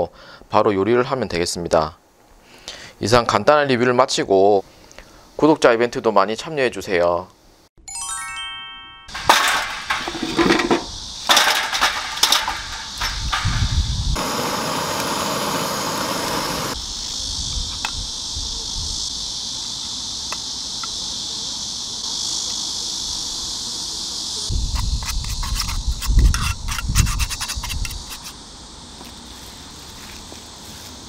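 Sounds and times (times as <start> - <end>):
handling knocks and clatter: 9.1 - 13.8
insects droning: 9.1 - 31.0
butane torch hissing: 10.9 - 20.9.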